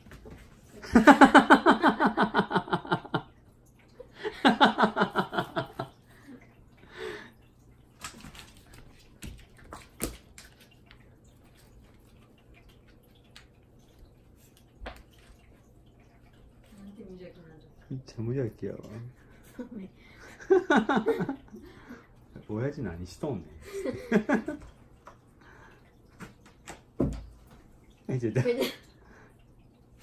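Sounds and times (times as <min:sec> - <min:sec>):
taps and rustles on wooden floor: 0:26.2 - 0:27.6.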